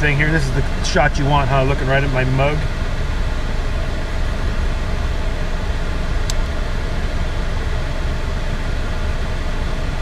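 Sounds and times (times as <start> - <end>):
air-conditioning fan rushing air: 0.0 - 10.0
car engine idling: 0.0 - 10.0.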